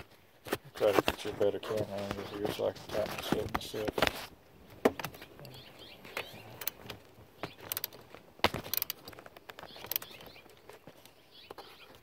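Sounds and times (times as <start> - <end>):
ratchet wrench clicking: 7.7 - 7.9, 8.7 - 9.0.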